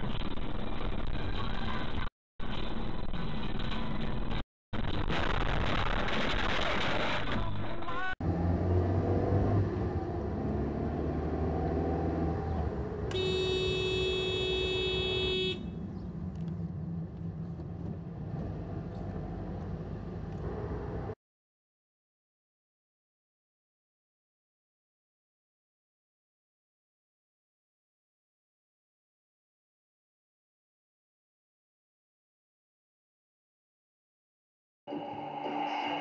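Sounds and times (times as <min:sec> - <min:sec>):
car road and engine noise: 0:08.2 - 0:21.2
car horn blast: 0:13.1 - 0:15.8.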